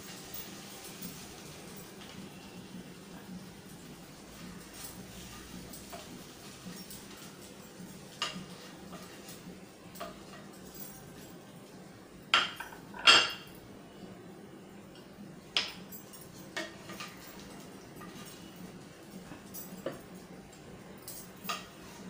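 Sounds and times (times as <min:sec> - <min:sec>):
kitchenware knocking and clinking: 0:12.3 - 0:13.6.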